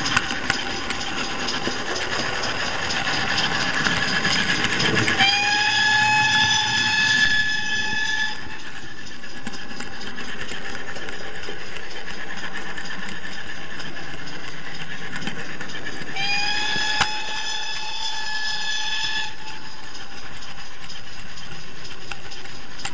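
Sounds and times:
steam engine chuffing: 0.0 - 22.9
steam whistle: 3.0 - 8.9, 16.1 - 19.9.

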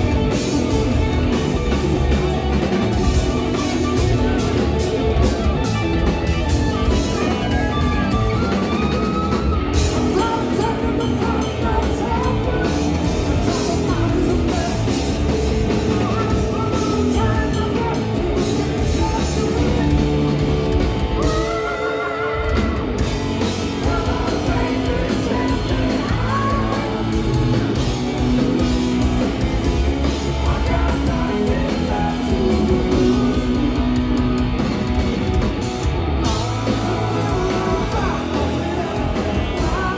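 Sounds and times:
drum kit: 0.0 - 39.9
electric bass: 0.0 - 39.9
electric guitar: 0.0 - 39.9
person singing: 9.4 - 20.2, 21.2 - 23.0, 23.7 - 27.8, 30.2 - 34.4, 36.2 - 39.9.

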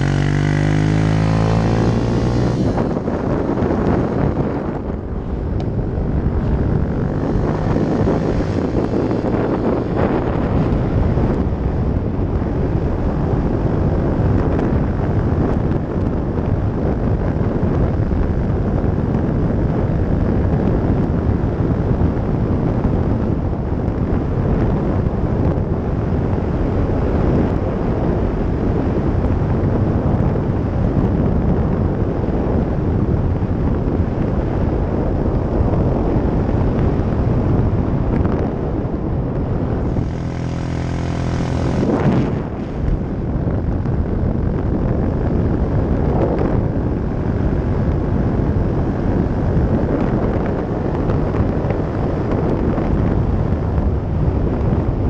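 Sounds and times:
motorcycle engine pulling: 0.0 - 11.8, 39.5 - 43.8
wind buffeting microphone: 0.0 - 55.0.

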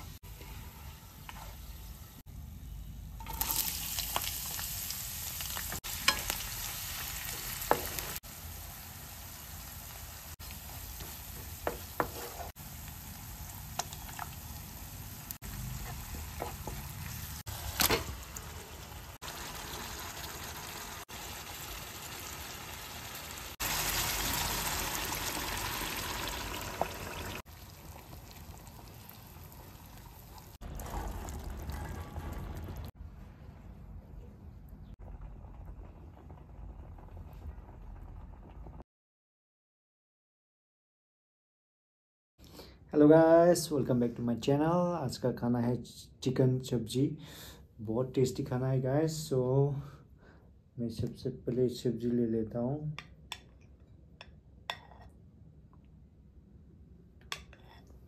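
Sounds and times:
food sizzling in a pan: 3.2 - 31.6.

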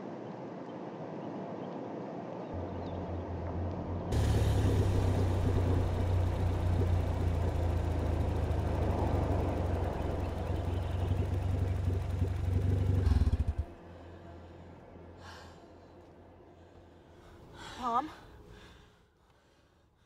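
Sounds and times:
faint low hum: 2.6 - 18.9
car engine running: 3.2 - 14.1.

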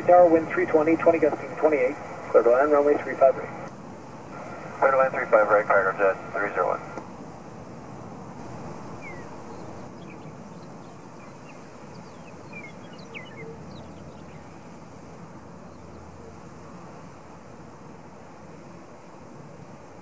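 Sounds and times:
steady rushing background noise: 0.0 - 20.0
small birds chirping: 8.8 - 14.8.

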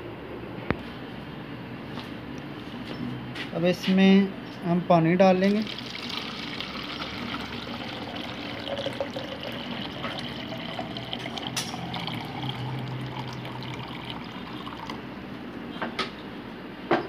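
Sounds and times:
water pouring into plastic bottle: 5.5 - 15.0.

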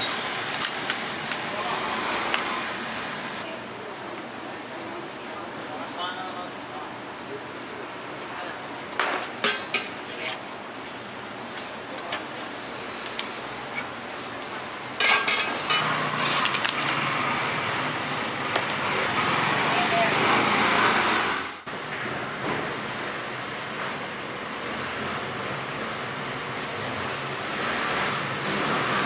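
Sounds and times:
market background noise: 0.0 - 29.0
knife and plastic boxes clicking: 16.0 - 17.0.

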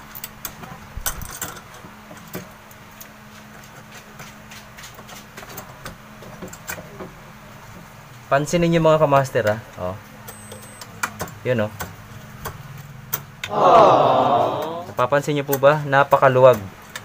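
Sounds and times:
clicks and knocks of handling parts: 0.1 - 7.9, 16.5 - 17.0.

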